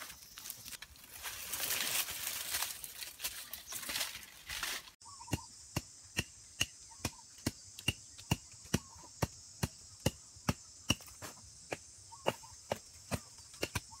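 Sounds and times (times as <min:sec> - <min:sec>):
rustling in dry brush: 0:00.0 - 0:05.0
digging tool striking sandy ground: 0:05.2 - 0:14.0.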